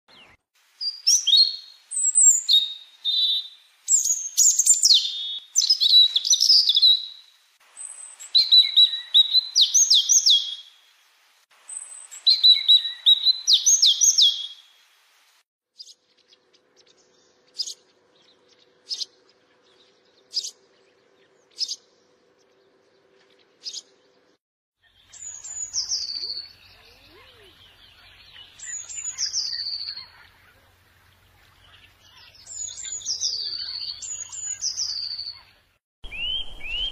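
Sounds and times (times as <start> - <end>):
birds chirping and trilling: 0.1 - 11.1, 11.7 - 14.8, 15.8 - 36.9
bird whistled notes: 36.1 - 36.9.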